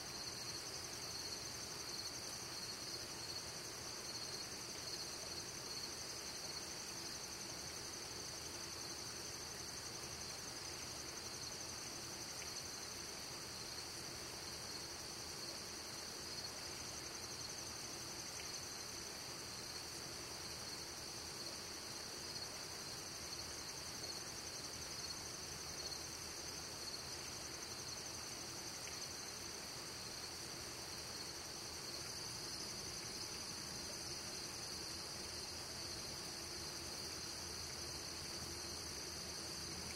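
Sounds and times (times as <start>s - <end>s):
faint hiss: 0.0s - 39.9s.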